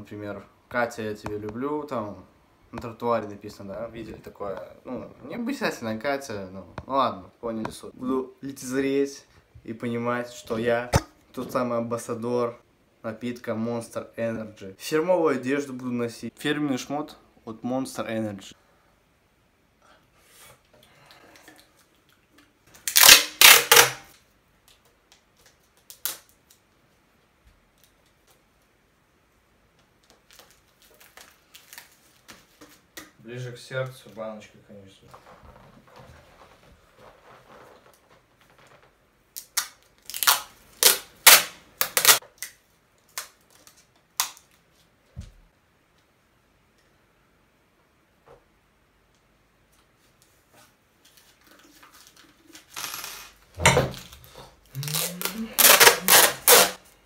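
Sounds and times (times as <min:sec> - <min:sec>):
aluminium can being crushed: 0:22.7 - 0:24.1, 0:39.4 - 0:44.5.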